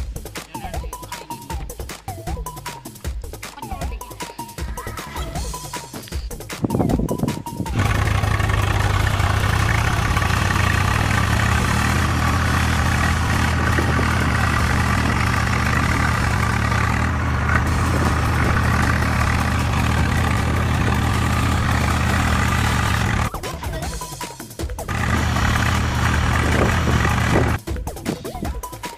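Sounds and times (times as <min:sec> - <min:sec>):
tractor engine idling: 0:07.7 - 0:23.4, 0:24.9 - 0:27.6.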